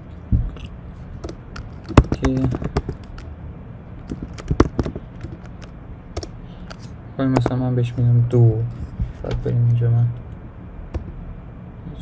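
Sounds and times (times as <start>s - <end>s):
keyboard typing: 1.2s - 3.3s, 4.1s - 6.4s.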